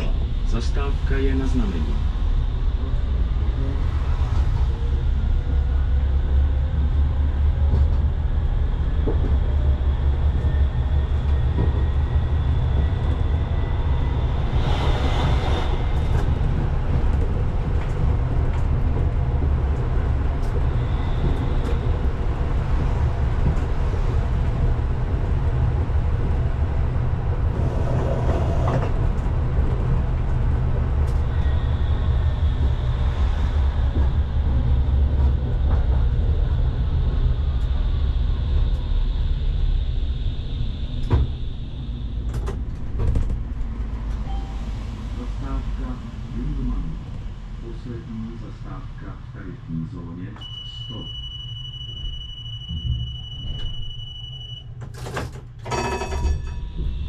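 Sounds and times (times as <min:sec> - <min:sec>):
tram running hum: 0:00.0 - 0:57.0
brief high squeal: 0:50.4 - 0:54.7.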